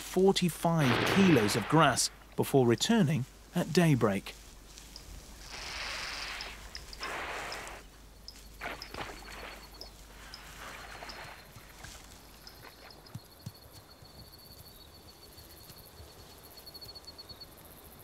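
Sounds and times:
high insect trill: 0:00.8 - 0:18.0
hippo tearing grass: 0:04.6 - 0:07.9, 0:08.5 - 0:12.3.

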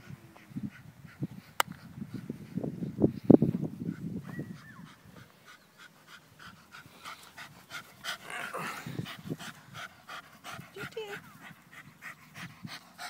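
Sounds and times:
dog panting: 0:04.6 - 0:13.0.

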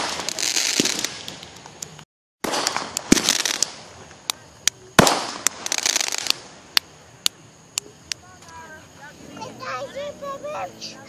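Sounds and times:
sharp cracks: 0:00.0 - 0:08.6
fireworks bangs: 0:00.0 - 0:09.6
fireworks crackling: 0:00.0 - 0:11.0.

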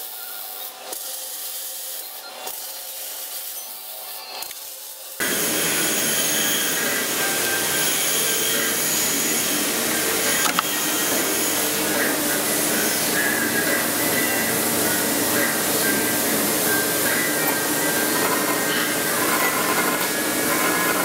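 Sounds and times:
drill press whirring: 0:05.2 - 0:21.0
sharp click: 0:10.4 - 0:10.7.

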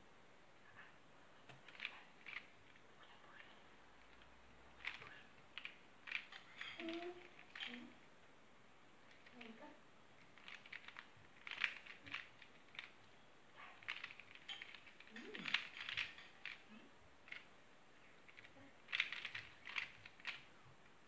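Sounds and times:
plastic puzzle clicking: 0:01.5 - 0:02.5, 0:04.1 - 0:07.9, 0:10.2 - 0:13.1, 0:13.8 - 0:17.5, 0:18.3 - 0:20.5.

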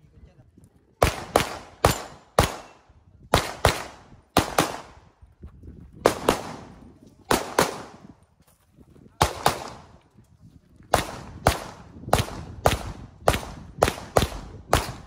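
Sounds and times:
handgun shots: 0:01.0 - 0:02.8.

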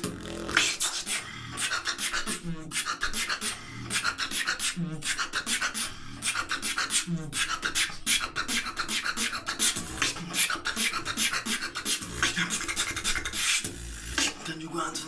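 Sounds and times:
lip-roll bass buzzes: 0:00.0 - 0:00.8
beatboxing hi-hat and snare: 0:00.0 - 0:15.0.

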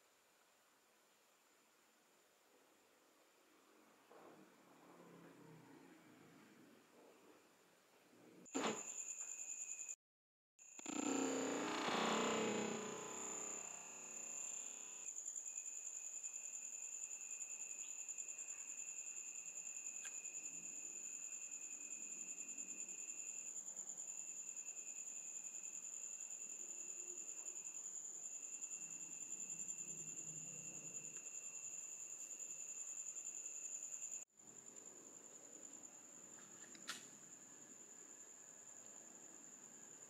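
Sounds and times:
high pulsing insect trill: 0:08.5 - 0:10.0, 0:10.6 - 0:36.7
lower insect trill: 0:08.5 - 0:10.0, 0:10.6 - 0:40.0.

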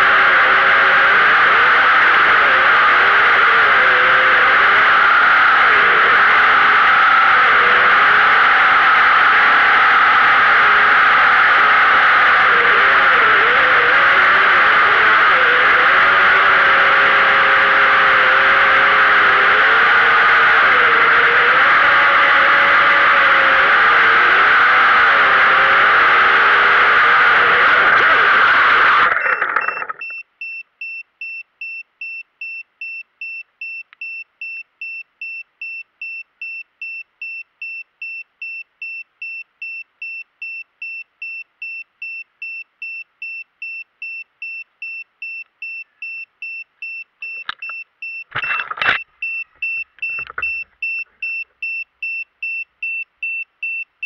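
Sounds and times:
drone motors whining: 0:00.0 - 0:30.1, 0:48.4 - 0:51.3
short high beeps: 0:29.2 - 0:53.9.

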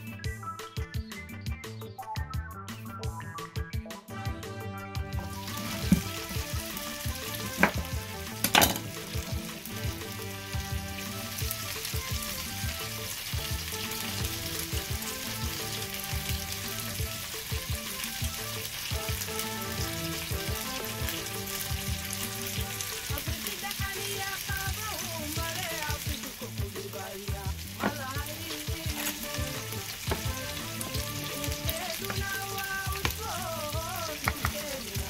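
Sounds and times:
background music: 0:00.0 - 0:35.0
seasoning grinder crackling: 0:05.4 - 0:10.2, 0:27.7 - 0:35.0.

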